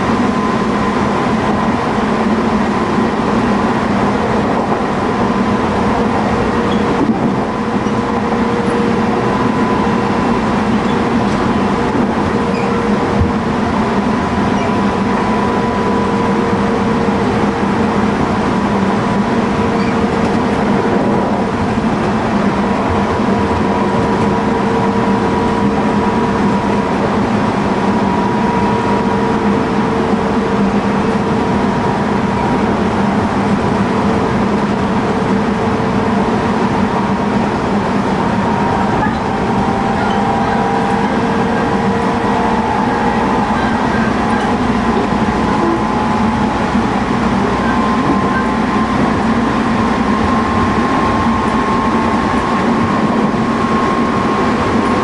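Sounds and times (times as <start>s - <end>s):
train car rumbling on track: 0.0s - 55.0s.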